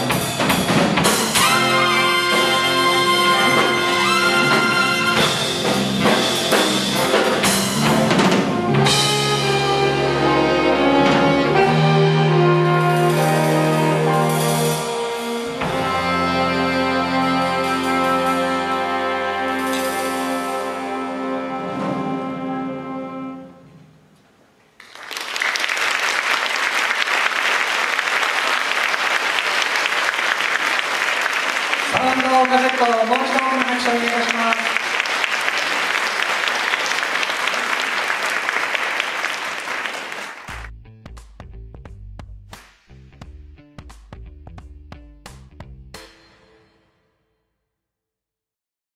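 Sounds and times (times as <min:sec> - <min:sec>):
big band playing: 0:00.0 - 0:24.4, 0:25.1 - 0:46.8
audience applauding: 0:24.8 - 0:40.7.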